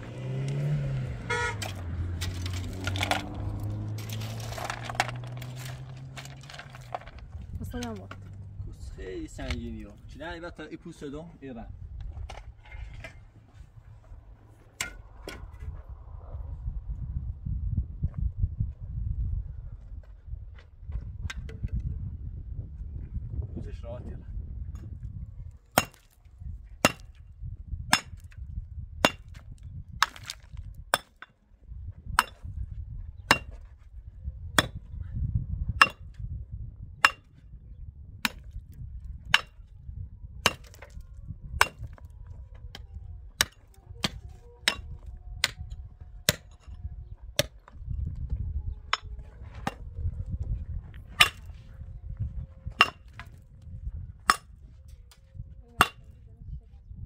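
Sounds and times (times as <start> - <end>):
low rumble: 0.0 - 10.6, 11.6 - 31.0, 31.6 - 57.0
pickaxe striking stony ground: 1.3 - 8.3, 14.8 - 15.5, 25.7 - 26.2, 26.8 - 27.2, 27.9 - 28.4, 29.0 - 31.3, 32.2 - 32.5, 33.2 - 33.7, 34.6 - 34.9, 35.8 - 36.2, 37.0 - 37.4, 38.2 - 39.7, 40.4 - 41.0, 41.6 - 42.0, 43.4 - 46.8, 47.4 - 47.8, 48.9 - 49.8, 51.1 - 51.6, 52.8 - 53.4, 54.2 - 54.6, 55.8 - 56.1.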